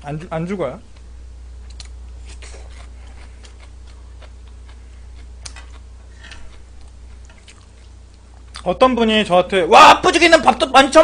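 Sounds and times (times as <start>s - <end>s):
low electrical hum: 0.0s - 11.0s
wet mouth clicks: 1.7s - 4.6s
chewing noodles: 1.7s - 8.6s.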